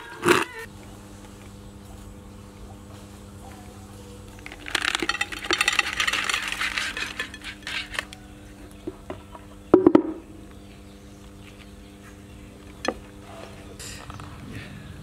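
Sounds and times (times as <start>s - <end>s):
faint steady hum: 0.0s - 15.0s
grubs pattering into a bowl: 3.0s - 8.8s.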